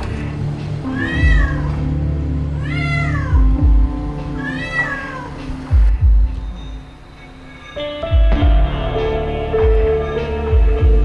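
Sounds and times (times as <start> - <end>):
background music with deep drum beats: 0.0 - 11.0
cat meowing: 0.9 - 1.8, 2.6 - 3.4, 4.4 - 5.4.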